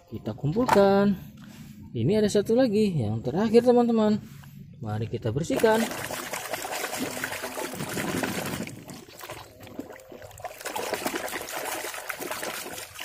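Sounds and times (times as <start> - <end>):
muddy water sloshing: 5.5 - 13.0.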